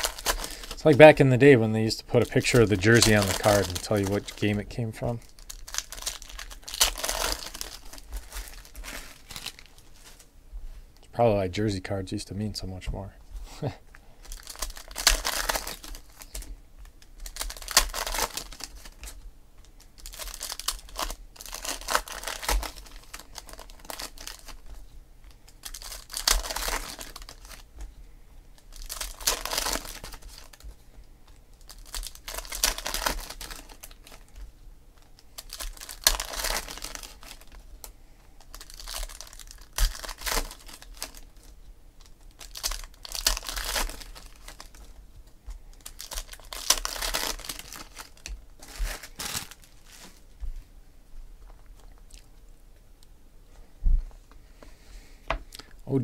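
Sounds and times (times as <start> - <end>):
foil wrappers tearing and crinkling: 0.0 - 10.3, 14.2 - 27.7, 28.6 - 30.7, 31.3 - 45.0, 45.7 - 50.3.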